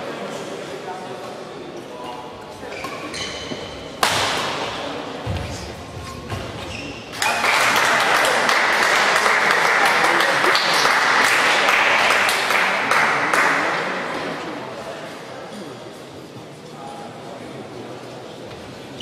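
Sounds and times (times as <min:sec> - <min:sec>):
racket striking shuttlecock: 0:04.0 - 0:04.6
spectators applauding: 0:07.2 - 0:13.7.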